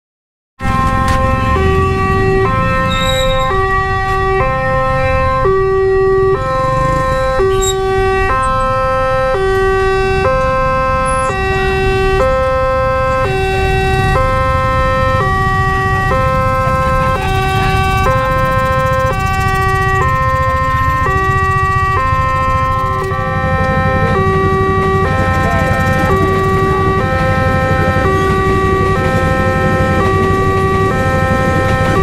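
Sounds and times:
level crossing two-tone alarm: 0:00.6 - 0:32.0.

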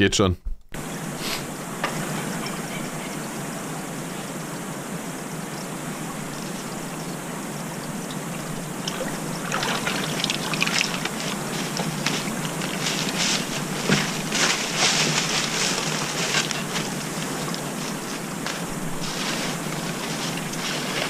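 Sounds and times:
forest stream flowing: 0:00.8 - 0:21.0
footsteps in dry leaves: 0:09.9 - 0:21.0.

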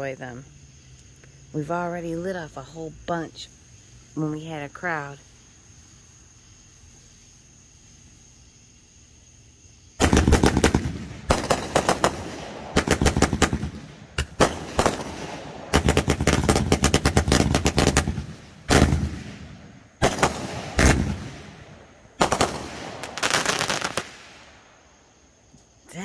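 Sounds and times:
fireworks bangs and crackles: 0:10.0 - 0:24.7.

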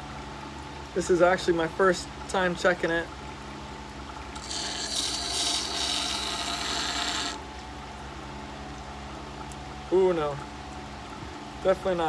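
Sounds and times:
blade grinding on stone: 0:04.4 - 0:07.4
grinder motor hum: 0:04.4 - 0:07.4.

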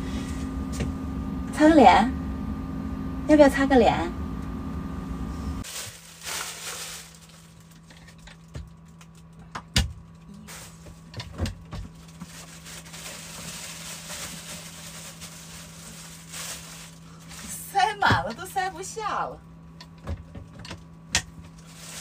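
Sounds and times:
steady low hum: 0:00.0 - 0:22.0
plastic bags rustling: 0:05.6 - 0:08.5, 0:10.5 - 0:18.0, 0:21.5 - 0:22.0.

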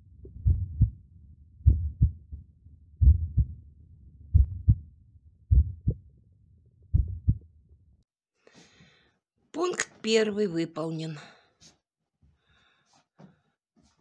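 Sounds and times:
heartbeat thumps: 0:00.2 - 0:01.0, 0:01.6 - 0:02.4, 0:03.0 - 0:03.6, 0:04.3 - 0:04.8, 0:05.5 - 0:06.0, 0:06.9 - 0:07.5.

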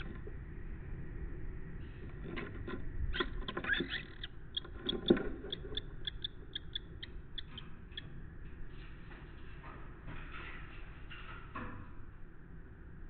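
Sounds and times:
short high bird calls: 0:03.8 - 0:07.7.

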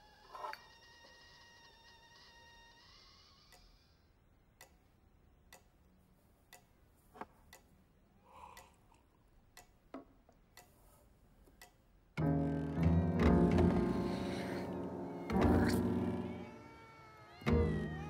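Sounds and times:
wall clock ticking: 0:04.5 - 0:05.8, 0:06.4 - 0:10.8, 0:11.4 - 0:12.2.

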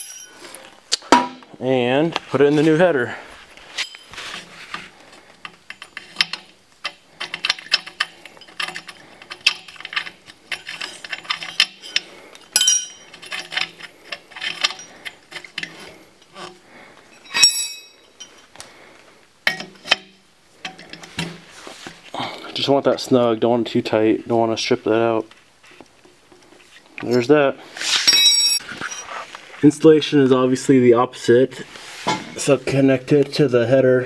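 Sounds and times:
metal clinks: 0:00.0 - 0:00.4, 0:07.2 - 0:15.1, 0:17.1 - 0:18.5, 0:28.0 - 0:29.0.

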